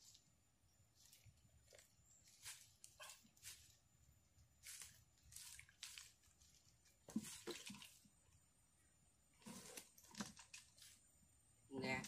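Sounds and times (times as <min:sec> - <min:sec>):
water splashing into bucket: 0:07.1 - 0:08.1.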